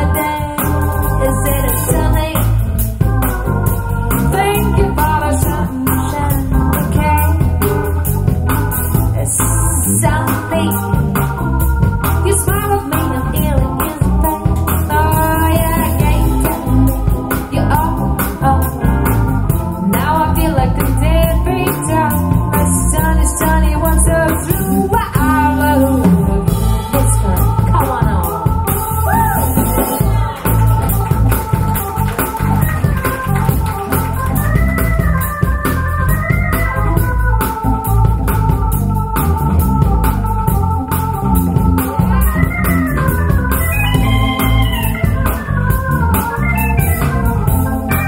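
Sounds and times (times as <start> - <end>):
organ-like keyboard chords: 0.0 - 48.0
steady bass: 0.0 - 48.0
wavering melodic line: 27.2 - 48.0.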